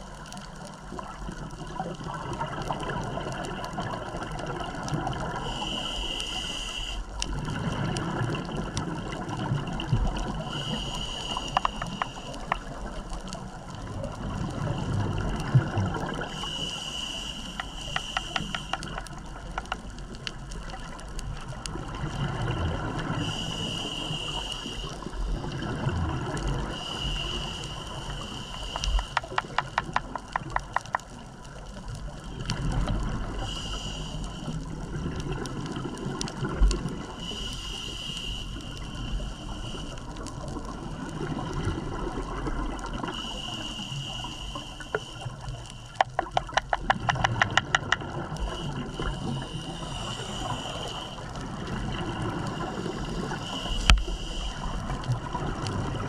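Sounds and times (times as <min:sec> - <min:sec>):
faint clicks: 0:00.0 - 0:22.2, 0:26.3 - 0:41.1, 0:42.2 - 0:56.0
exhaled bubbles rushing: 0:01.2 - 0:05.4, 0:07.3 - 0:10.5, 0:13.7 - 0:16.3, 0:21.5 - 0:23.3, 0:25.3 - 0:26.8, 0:34.7 - 0:37.2, 0:51.3 - 0:53.5, 0:54.6 - 0:56.0
diver breathing through regulator: 0:05.3 - 0:07.1, 0:10.2 - 0:12.7, 0:16.0 - 0:19.8, 0:23.0 - 0:25.6, 0:26.3 - 0:30.7, 0:33.3 - 0:34.7, 0:37.0 - 0:40.4, 0:42.8 - 0:55.3.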